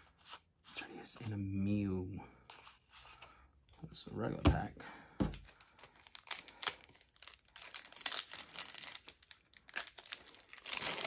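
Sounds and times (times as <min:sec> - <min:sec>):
foil wrapper crinkling and tearing: 0:05.4 - 0:11.0.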